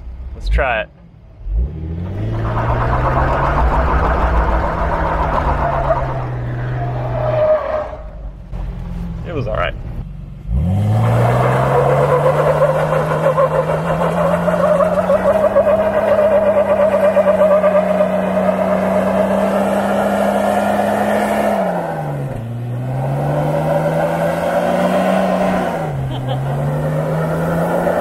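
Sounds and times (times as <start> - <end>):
engine revving hard: 1.4 - 7.4, 10.5 - 28.0
tyres spinning on wet pavement: 2.2 - 7.9, 11.1 - 21.3.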